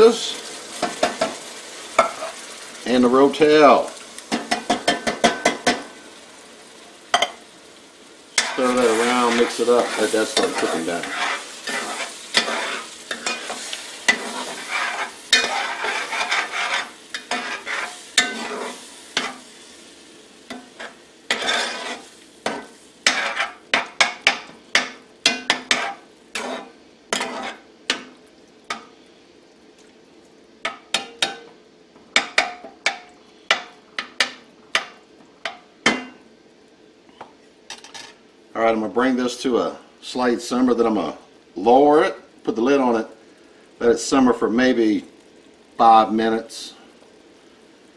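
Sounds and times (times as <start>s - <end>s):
food sizzling in a pot: 0.0s - 47.9s
metal spoon stirring and scraping: 8.4s - 19.4s, 20.5s - 24.2s, 25.3s - 27.7s.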